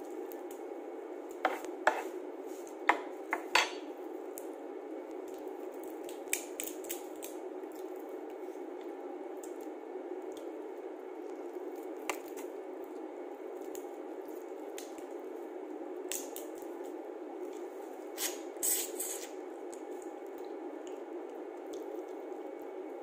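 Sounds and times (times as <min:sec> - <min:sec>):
steady background hum: 0:00.0 - 0:23.0
wet squishing of peeling shellfish: 0:04.3 - 0:23.0.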